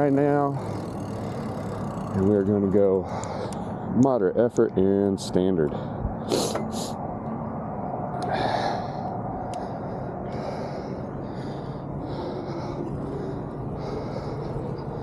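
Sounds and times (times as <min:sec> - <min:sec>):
person breathing quickly: 0:00.5 - 0:02.1, 0:03.0 - 0:04.0, 0:05.7 - 0:07.0, 0:08.1 - 0:15.0.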